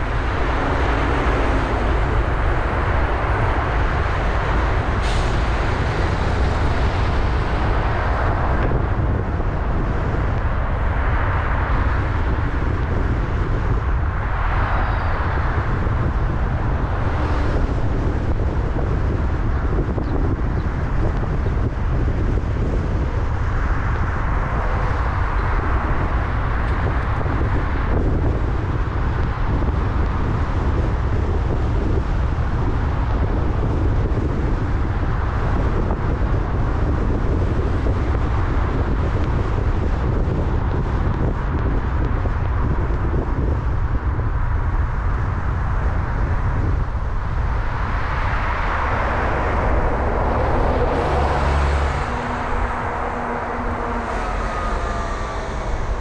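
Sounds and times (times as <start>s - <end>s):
tyre and road noise: 0.0s - 56.0s
wind buffeting microphone: 0.0s - 56.0s.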